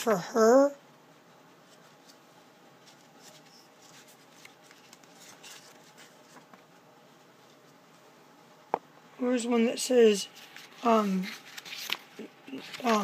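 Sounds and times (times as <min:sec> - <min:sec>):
room hiss: 0:00.0 - 0:13.0
book pages rustling: 0:01.6 - 0:06.8, 0:10.2 - 0:13.0.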